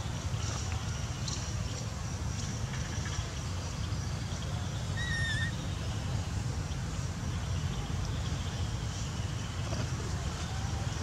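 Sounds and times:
high-pitched animal call: 5.0 - 5.5.

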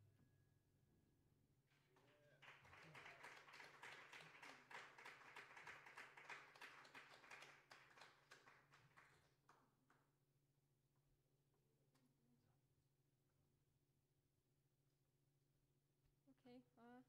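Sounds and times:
faint applause: 1.8 - 9.3.

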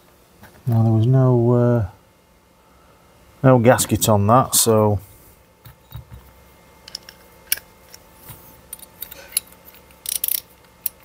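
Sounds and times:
small metal parts clicking: 6.8 - 8.0, 8.7 - 11.0.

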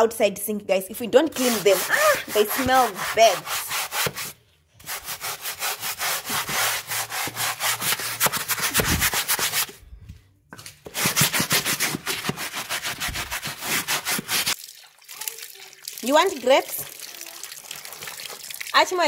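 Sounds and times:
brush scrubbing wet sink: 1.0 - 9.7, 10.9 - 14.6, 17.6 - 19.0.

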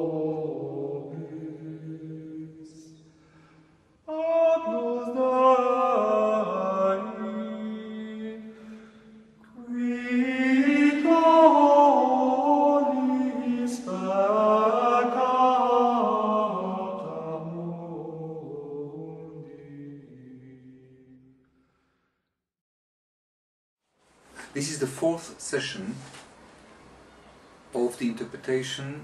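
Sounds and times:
chanted held voices: 0.0 - 3.1, 4.1 - 8.8, 9.4 - 20.7.

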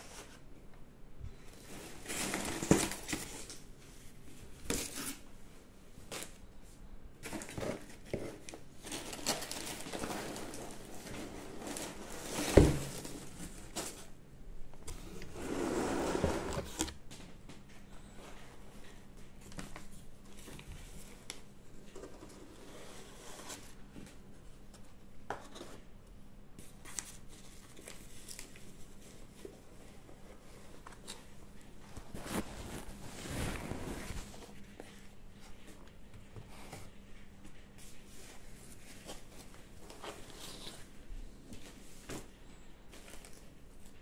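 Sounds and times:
packing material rustling: 7.2 - 14.2, 26.8 - 34.8.

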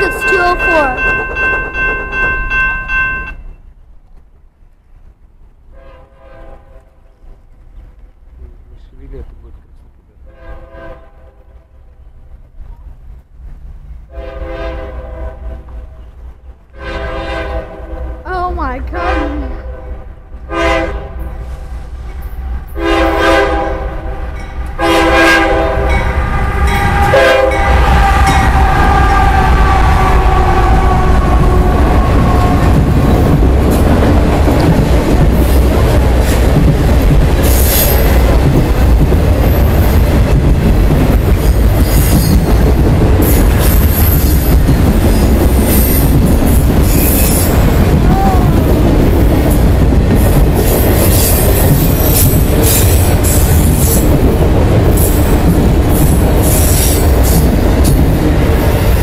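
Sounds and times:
freight train rumble and clatter: 0.0 - 59.0
locomotive air horn blasts: 5.7 - 6.9, 10.3 - 11.5, 14.1 - 16.1, 16.7 - 18.2, 19.0 - 21.7, 22.7 - 32.8.

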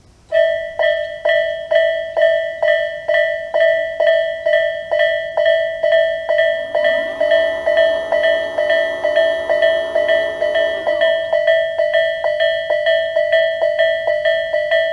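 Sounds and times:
electronic crossing bell dinging: 0.3 - 14.9
lower tones: 6.4 - 13.1.

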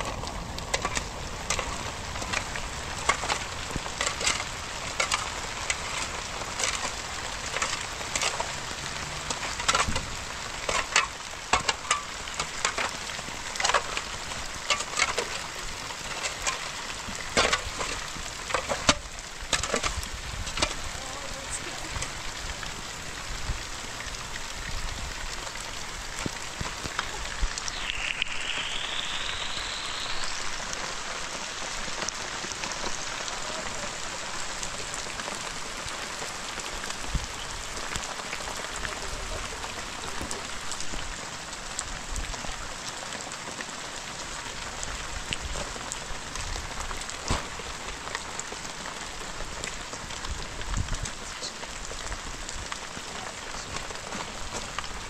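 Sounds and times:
steady rain falling: 0.0 - 55.0
faint high gliding tone: 27.7 - 30.8.

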